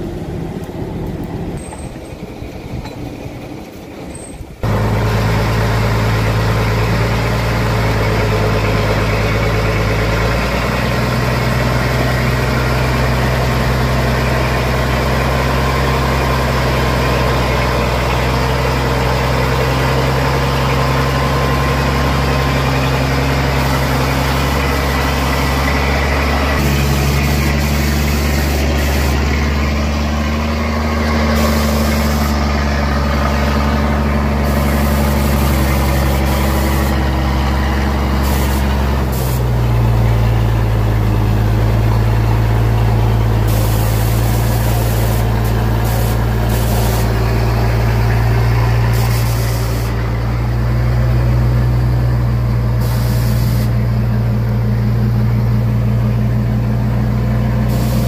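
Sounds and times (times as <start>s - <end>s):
truck engine running: 0.0s - 58.0s.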